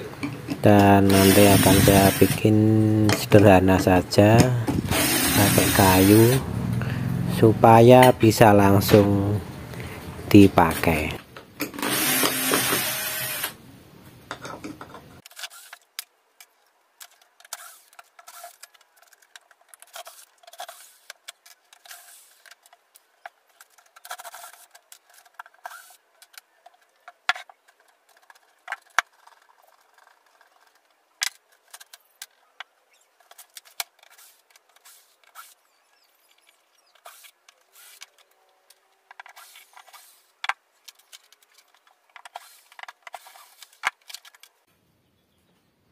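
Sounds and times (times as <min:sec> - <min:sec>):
screws and wooden parts clicking: 0:00.2 - 0:02.5, 0:04.2 - 0:06.4, 0:11.6 - 0:13.6, 0:14.8 - 0:44.6
electric drill whirring: 0:01.1 - 0:02.4, 0:04.8 - 0:06.4, 0:11.8 - 0:13.6.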